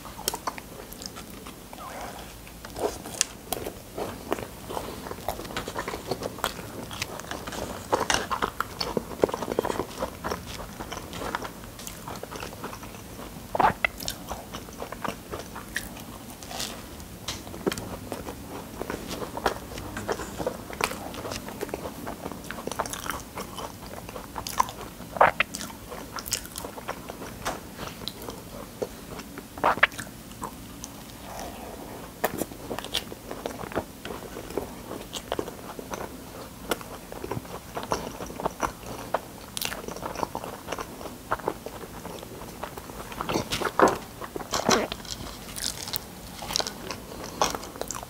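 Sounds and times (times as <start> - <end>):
crunchy chewing: 0.1 - 48.0
wet mouth sounds: 13.6 - 15.9, 22.6 - 26.7, 29.6 - 30.1.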